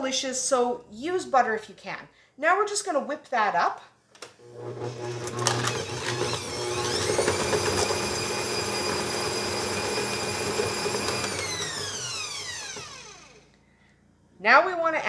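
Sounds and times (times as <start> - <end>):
mixer motor whine: 4.4 - 13.6.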